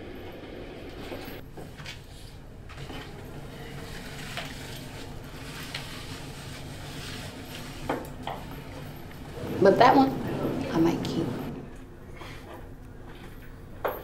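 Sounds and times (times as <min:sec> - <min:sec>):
steady low hum: 0:08.4 - 0:12.4.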